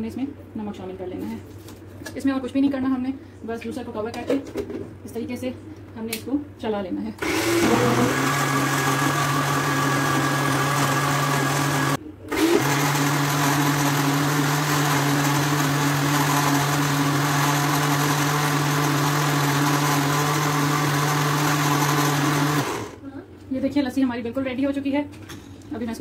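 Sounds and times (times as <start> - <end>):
electric blender whirring: 7.2 - 23.0.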